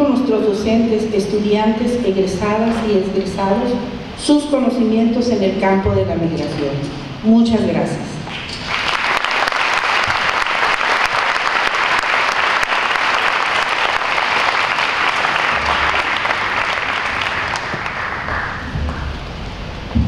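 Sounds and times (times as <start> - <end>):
large audience applauding: 8.3 - 19.3.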